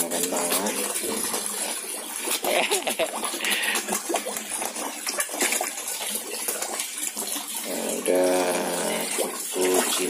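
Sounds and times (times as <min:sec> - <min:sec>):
fish splashing and slurping: 0:00.0 - 0:10.0.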